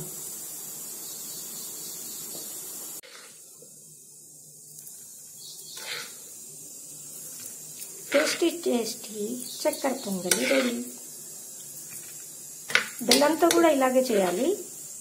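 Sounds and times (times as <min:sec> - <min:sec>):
hot pot hissing: 0:00.0 - 0:15.0
spoon scraping a glass bowl: 0:05.7 - 0:06.2, 0:10.3 - 0:10.9.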